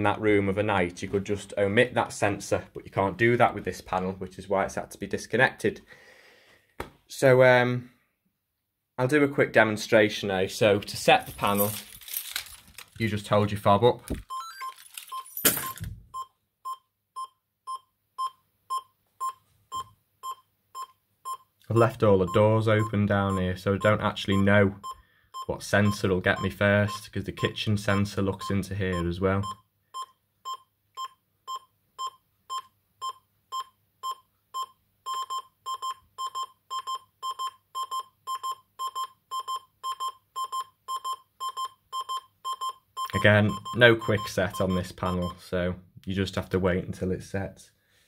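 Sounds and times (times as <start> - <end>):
alarm panel beeping: 35.1 - 45.3.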